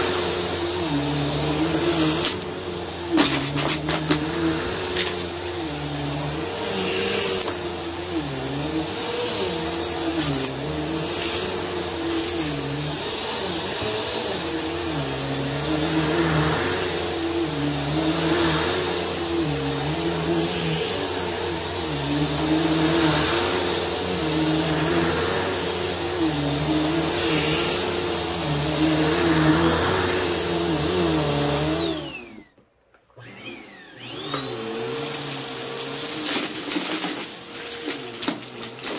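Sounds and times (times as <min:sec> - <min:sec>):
stick vacuum motor whining: 0:00.0 - 0:38.9.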